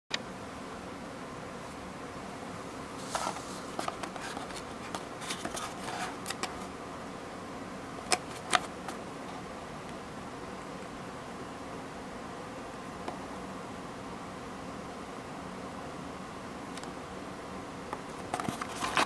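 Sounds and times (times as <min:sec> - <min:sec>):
steady background hiss: 0:00.1 - 0:19.0
cardboard box rustling: 0:03.0 - 0:06.5, 0:18.3 - 0:19.0.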